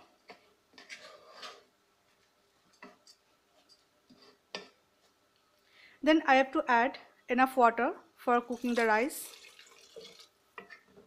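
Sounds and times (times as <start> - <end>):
spatula scraping rice in pan: 0.0 - 4.8.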